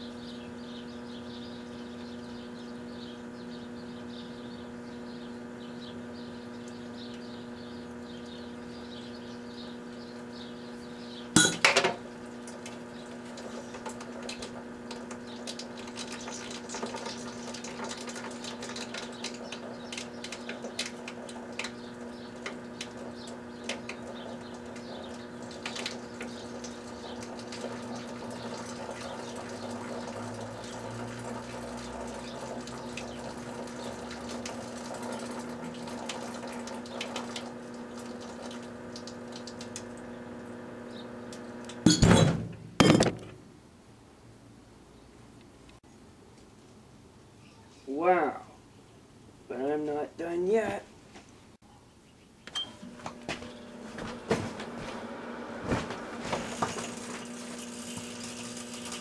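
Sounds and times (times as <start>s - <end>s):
microwave oven humming: 0.0s - 44.7s, 51.7s - 59.0s
battery bursting bang: 41.9s - 43.4s.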